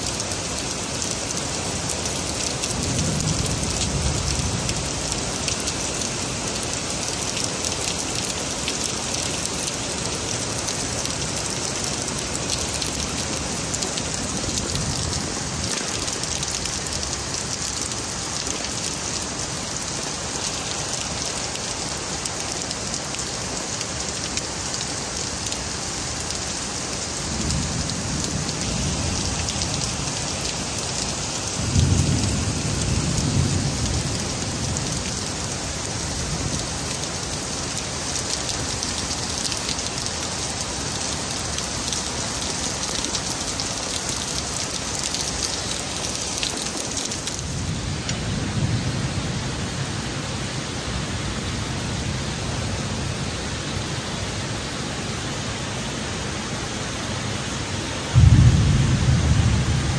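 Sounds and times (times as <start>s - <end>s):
heavy rain falling: 0.0s - 59.9s
low thunder rumbles: 27.2s - 37.4s, 58.1s - 59.9s.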